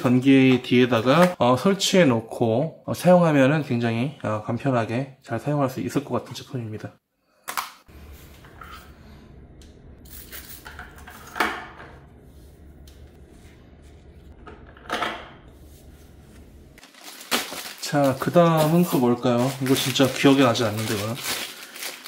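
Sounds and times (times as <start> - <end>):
steady low hum: 7.9 - 16.8.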